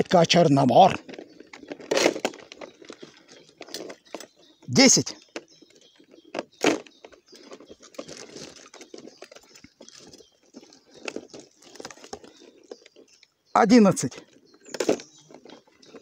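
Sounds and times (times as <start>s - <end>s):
mesh trap rustling: 0.5s - 4.6s, 5.3s - 13.2s.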